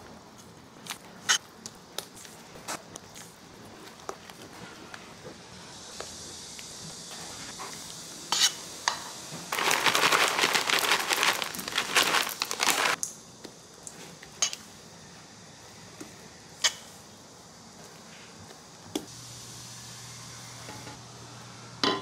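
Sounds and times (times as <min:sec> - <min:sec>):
chocolate chips poured from packet: 0:09.5 - 0:13.0.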